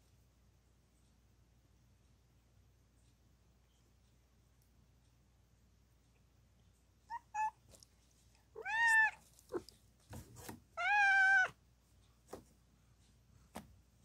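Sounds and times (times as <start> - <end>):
cat chirp: 7.1 - 7.6, 8.6 - 9.6, 10.8 - 11.6
cat meowing: 7.1 - 7.6, 8.6 - 9.6, 10.8 - 11.6
faint low cat calls: 8.6 - 9.2.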